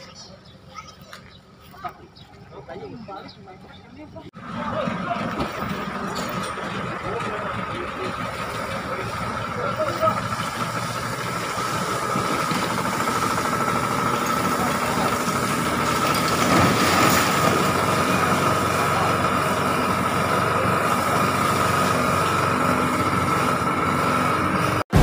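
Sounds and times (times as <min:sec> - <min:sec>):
scattered voices: 0:00.0 - 0:12.7
engine running with high whine: 0:00.0 - 0:25.0.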